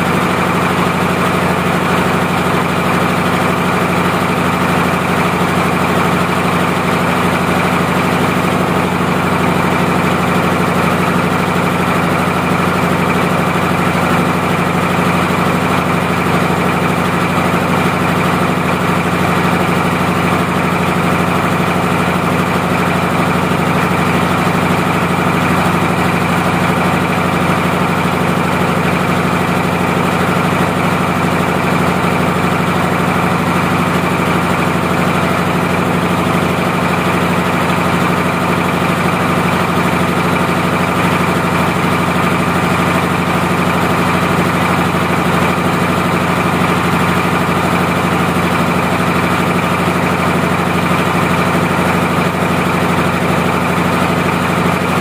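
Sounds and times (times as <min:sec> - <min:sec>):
diesel generator idling: 0:00.0 - 0:55.0.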